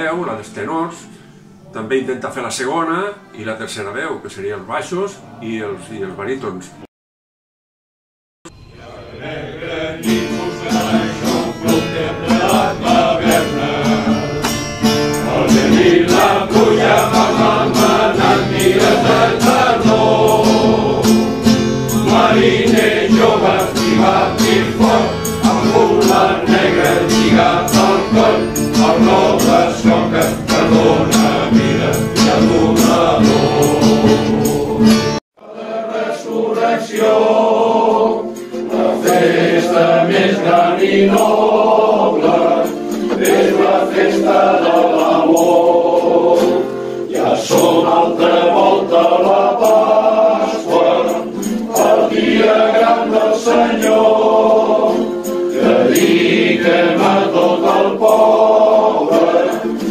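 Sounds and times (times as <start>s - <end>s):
men's choir singing: 8.7s - 59.9s.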